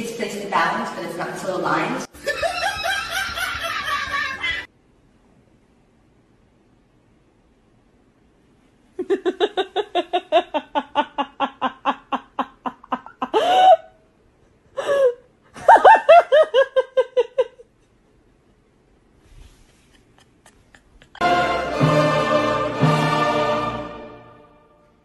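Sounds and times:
woman laughing hard: 2.1s - 4.7s, 9.0s - 14.0s, 14.6s - 17.7s, 19.8s - 21.3s
orchestral music with timpani: 21.2s - 24.8s.

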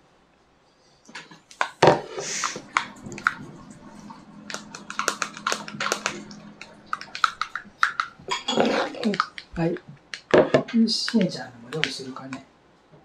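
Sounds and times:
hot water dispenser humming: 1.5s - 12.4s
plastic cup crinkling and clicking: 2.4s - 12.4s.

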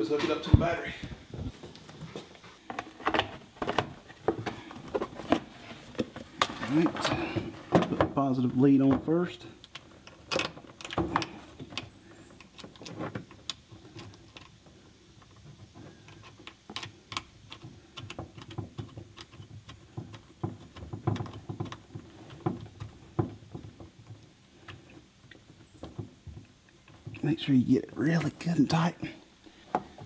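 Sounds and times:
small metallic clicks and taps: 16.0s - 22.9s.

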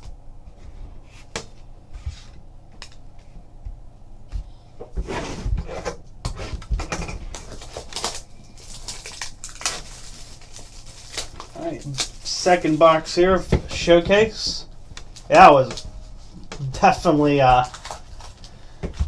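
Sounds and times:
cards rustling and crinkling: 6.8s - 19.0s.

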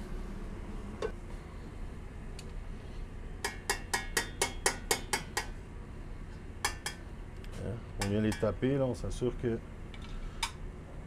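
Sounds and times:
kitchen range humming: 0.0s - 11.0s
metal spoon tapping on pan: 3.4s - 5.5s, 6.6s - 7.0s, 8.0s - 8.5s.

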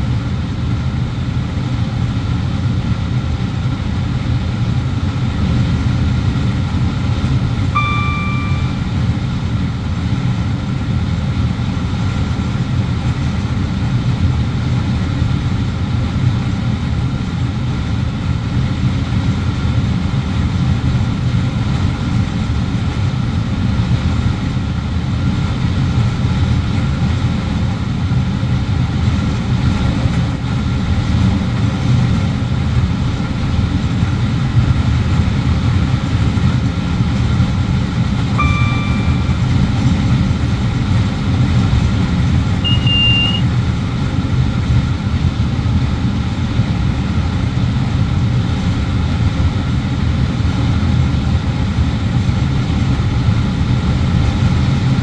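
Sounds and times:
train low rumble: 0.0s - 55.0s
short electronic beep: 7.8s - 9.1s, 38.3s - 39.7s, 42.6s - 43.5s.

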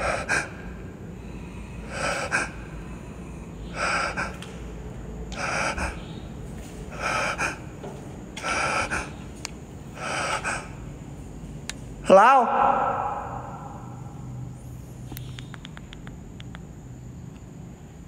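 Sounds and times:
person breathing heavily: 0.0s - 11.2s
low steady hum: 0.0s - 18.0s.

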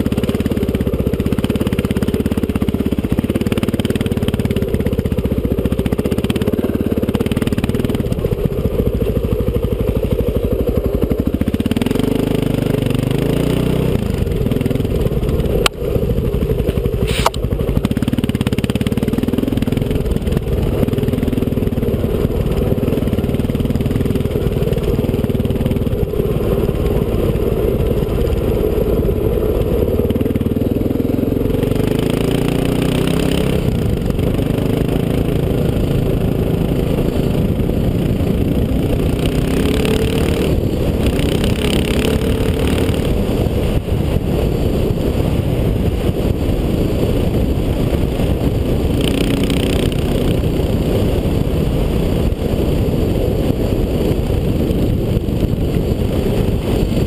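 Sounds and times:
dirt bike engine: 0.0s - 57.0s
low rumble: 4.3s - 32.6s.

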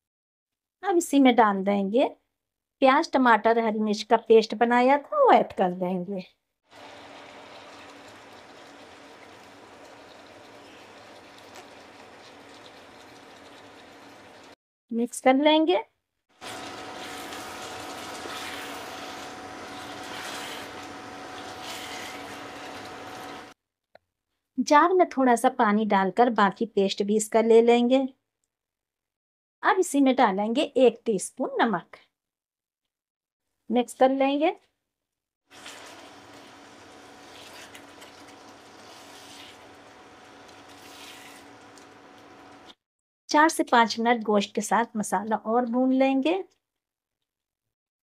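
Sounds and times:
faint cooktop hum: 6.7s - 14.6s, 35.6s - 42.7s
food sizzling in hot oil: 6.7s - 14.6s, 16.3s - 23.6s, 35.5s - 42.7s
spatula stirring: 6.8s - 14.6s, 16.4s - 23.5s, 35.5s - 42.7s.

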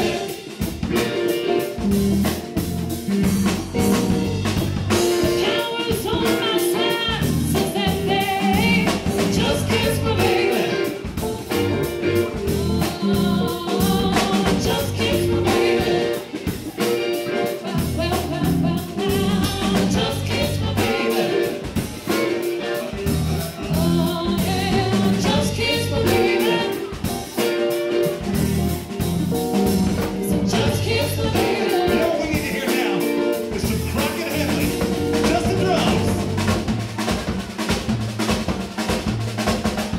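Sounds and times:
electric guitar: 0.0s - 39.1s
bass guitar: 0.0s - 39.9s
drum kit: 0.0s - 39.9s
keyboards: 0.0s - 39.9s
person singing: 4.9s - 28.0s, 30.2s - 36.2s.

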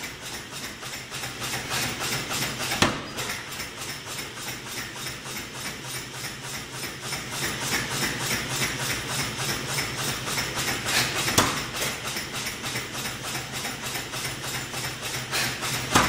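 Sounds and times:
power hammer striking hot steel: 10.4s - 14.5s.

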